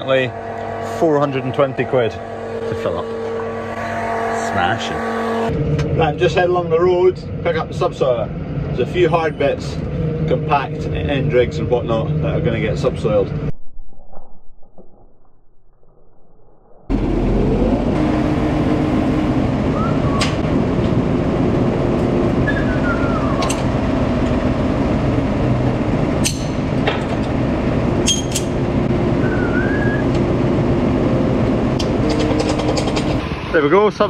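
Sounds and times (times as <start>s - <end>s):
tractor engine running: 0.0s - 13.5s, 16.9s - 34.0s
sharp metallic knocks: 26.2s - 27.4s.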